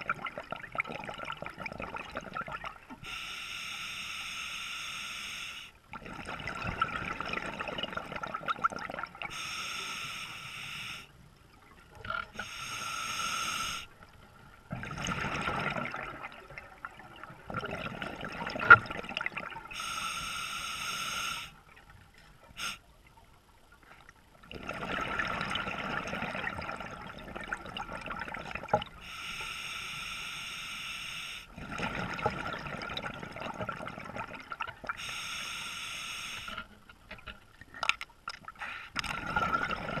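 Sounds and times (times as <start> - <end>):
regulator hissing inhale: 3.0 - 5.8, 9.3 - 11.1, 12.4 - 13.9, 19.7 - 21.6, 22.6 - 22.8, 29.0 - 31.5, 35.0 - 36.7
exhaled bubbles rushing: 5.9 - 9.3, 14.7 - 19.7, 24.5 - 29.0, 31.5 - 35.0, 39.0 - 40.0.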